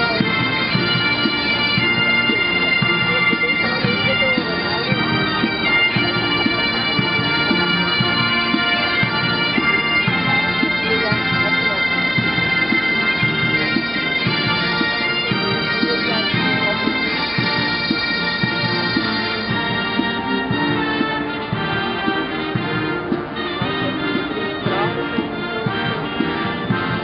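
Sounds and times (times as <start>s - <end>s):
bagpipes playing a march: 0.0s - 27.0s
brass instruments playing: 0.0s - 27.0s.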